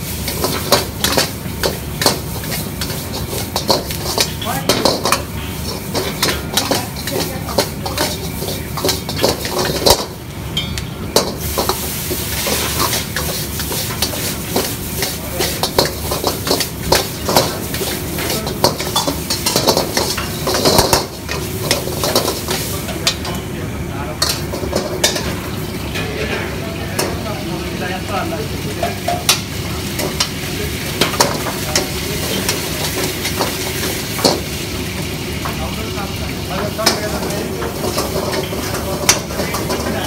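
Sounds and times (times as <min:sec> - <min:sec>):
food sizzling: 0:00.0 - 0:40.0
metal ladle clanking in a wok: 0:00.2 - 0:11.8, 0:12.4 - 0:23.4.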